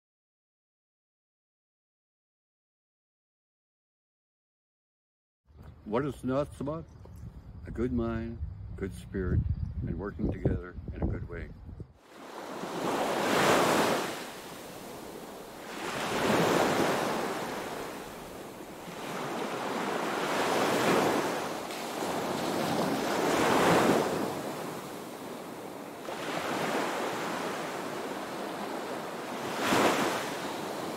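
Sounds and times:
ocean waves washing in: 12.0 - 30.9.

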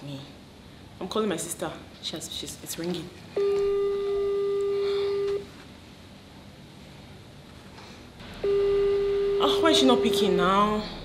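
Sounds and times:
phone ringback beep: 3.4 - 5.5, 8.4 - 10.3.

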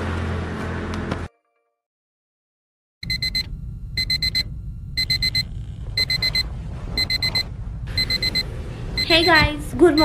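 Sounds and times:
alarm beeping: 3.0 - 10.0.

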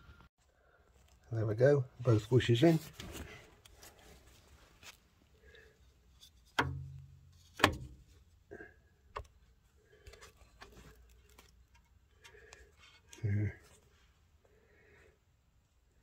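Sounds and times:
sharp knocks and clicks: 6.5 - 8.1.

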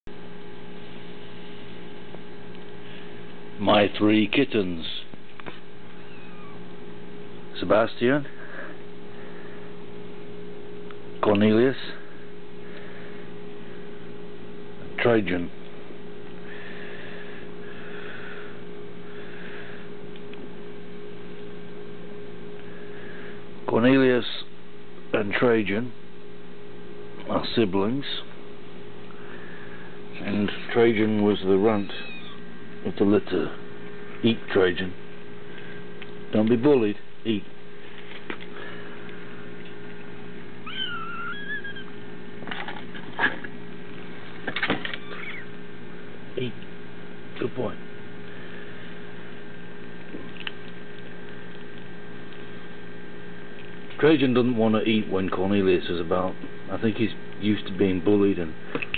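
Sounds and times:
electrical hum: 0.0 - 58.9
kitten meowing: 5.9 - 6.6, 31.8 - 32.5, 40.6 - 41.9, 44.9 - 45.5.

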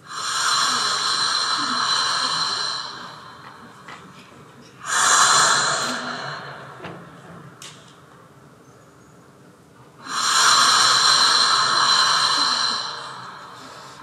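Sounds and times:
loud rasping breath-like sound: 0.0 - 3.9, 4.8 - 6.8, 10.0 - 14.0.

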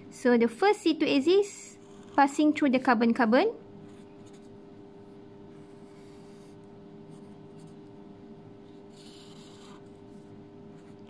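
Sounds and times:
marker scratching on paper: 3.9 - 4.6, 8.8 - 11.0.

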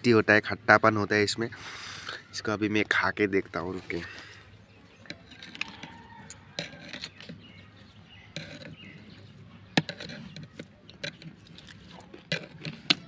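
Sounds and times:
fruit being bitten and chewed: 8.2 - 13.0.

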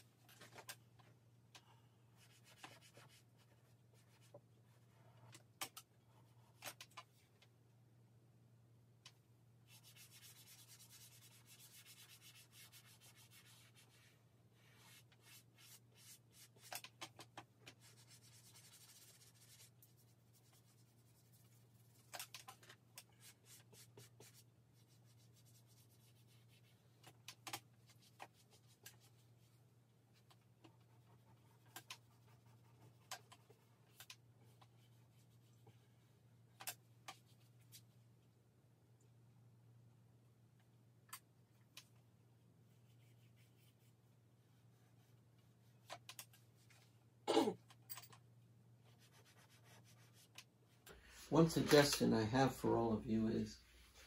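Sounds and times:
drawing stick scratching paper: 9.7 - 29.2, 30.6 - 35.8, 48.9 - 50.4.

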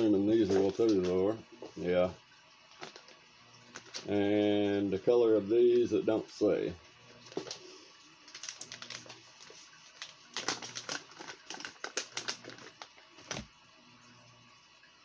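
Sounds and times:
plastic packaging crinkling: 0.0 - 1.4, 2.7 - 4.2, 7.2 - 13.5.

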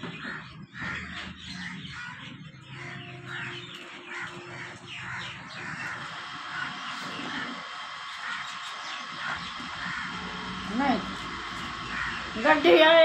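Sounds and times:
crows cawing: 0.0 - 12.8
low steady hum: 2.7 - 13.0.

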